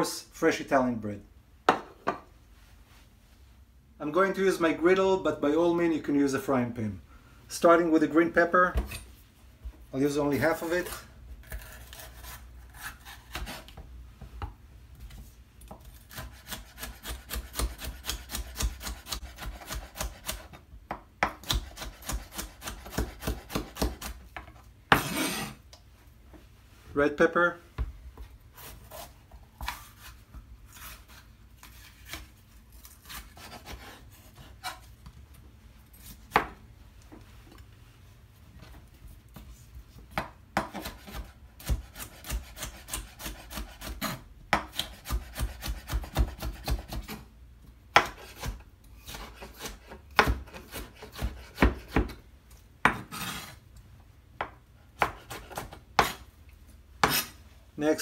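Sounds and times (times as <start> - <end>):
knife slicing pepper: 15.7 - 20.6, 21.2 - 24.2, 40.6 - 47.3, 47.9 - 52.2, 55.0 - 56.3, 57.0 - 57.4.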